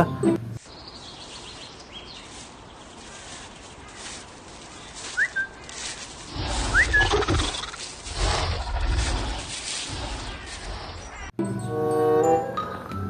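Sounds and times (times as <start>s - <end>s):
faint outdoor ambience: 0.0s - 13.0s
short whistled chirps: 5.1s - 5.6s
low dinosaur growl: 6.3s - 11.3s.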